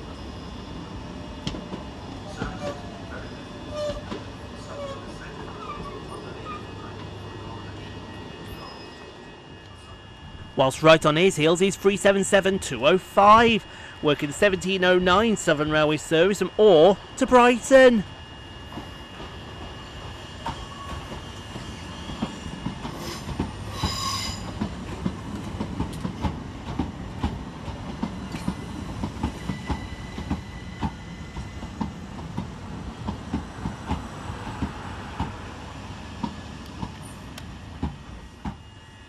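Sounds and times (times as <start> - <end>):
low train rumble: 0.0 - 39.0
high squeal: 8.5 - 9.2, 21.8 - 24.6
train wheels clicking over rail joints: 20.4 - 35.4.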